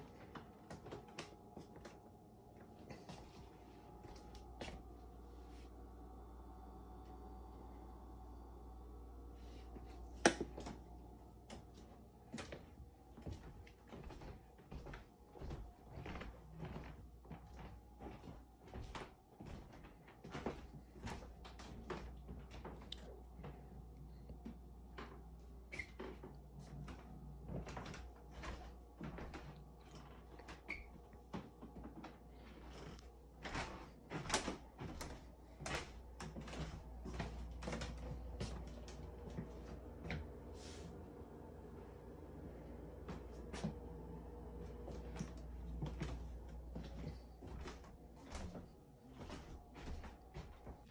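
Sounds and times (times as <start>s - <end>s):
low steady hum: 0.0s - 50.9s
footsteps on hard floor: 3.0s - 4.9s, 11.4s - 23.6s, 31.2s - 41.0s, 43.0s - 50.9s.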